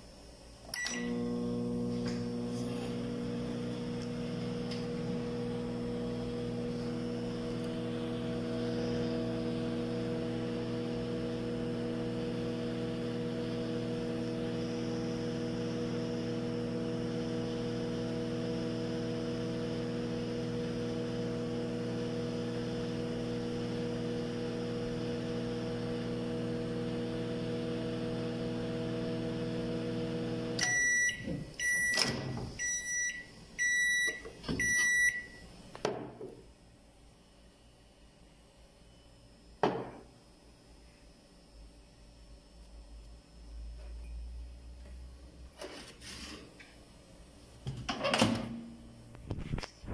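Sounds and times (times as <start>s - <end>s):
microwave oven humming: 0.7s - 35.7s.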